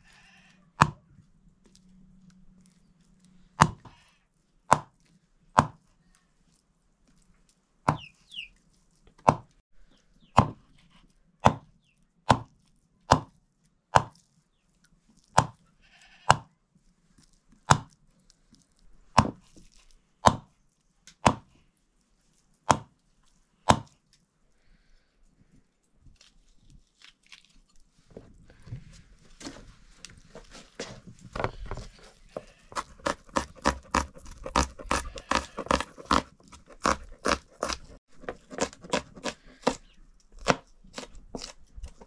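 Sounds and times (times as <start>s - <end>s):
heavy blade chopping: 12.3s - 12.5s, 20.2s - 20.5s, 21.2s - 21.5s, 22.7s - 22.9s, 23.7s - 24.0s, 32.4s - 39.8s.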